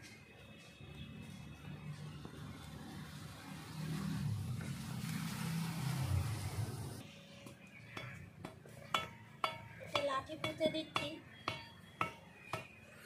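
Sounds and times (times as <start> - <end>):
vehicle passing: 1.1 - 7.1.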